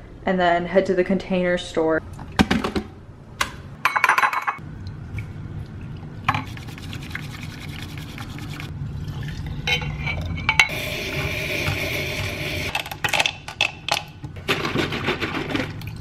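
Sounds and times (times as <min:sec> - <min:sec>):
ceramic and glass clinking: 0:03.8 - 0:04.6
liquid pouring: 0:04.8 - 0:09.7
bamboo whisk whisking in bowl: 0:06.3 - 0:08.7.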